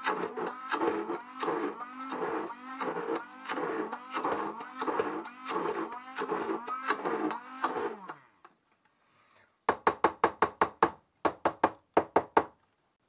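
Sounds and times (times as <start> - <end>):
immersion blender motor: 0.0 - 8.5.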